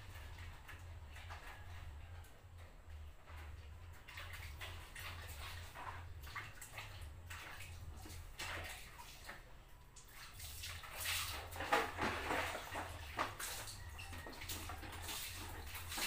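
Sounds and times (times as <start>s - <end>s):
water splashing in plastic basin: 3.3s - 16.0s.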